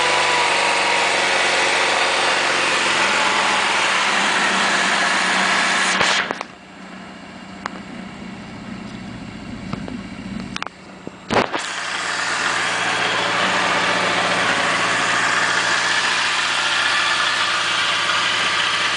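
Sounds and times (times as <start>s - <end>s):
motorcycle engine idling: 6.4s - 11.3s.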